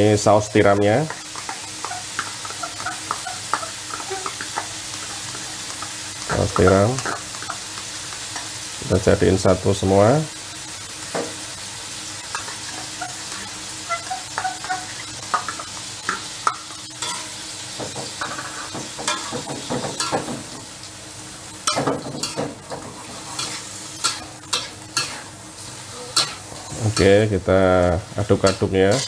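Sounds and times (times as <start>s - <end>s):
shrimp sizzling in oil: 0.0s - 29.0s
metal spatula scraping wok: 21.6s - 27.2s, 28.4s - 29.0s.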